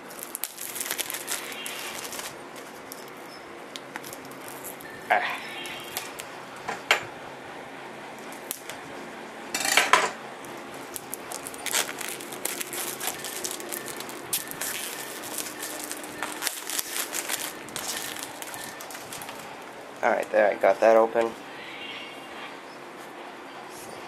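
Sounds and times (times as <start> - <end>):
plastic rustle: 0.0 - 5.0, 10.8 - 20.4
plastic wrap crinkling: 0.0 - 6.3, 10.7 - 20.4.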